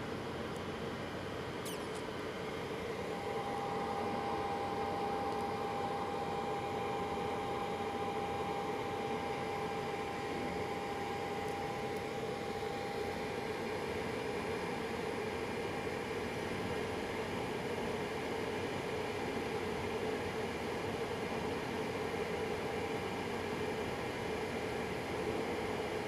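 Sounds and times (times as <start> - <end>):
steady machine whine: 0.0 - 16.0
heaters and fans blowing: 0.0 - 26.0.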